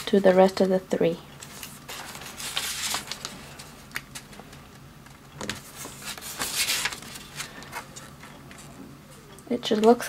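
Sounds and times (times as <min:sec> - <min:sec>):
paper rustling and crinkling: 0:01.4 - 0:04.6, 0:05.4 - 0:08.8.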